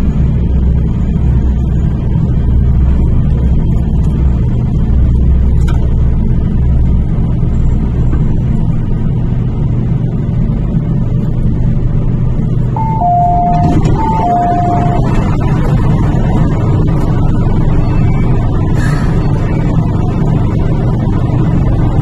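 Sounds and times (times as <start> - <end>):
train running rumble: 0.0 - 22.0
train cabin hum: 12.7 - 22.0
two-tone electronic door chime: 12.8 - 15.6.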